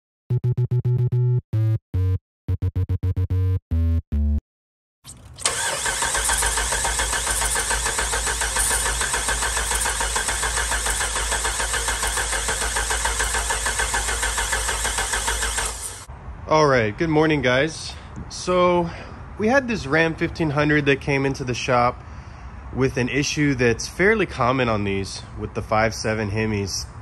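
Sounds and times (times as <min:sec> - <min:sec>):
engine running with misfire pulse: 0:05.1 - 0:16.1.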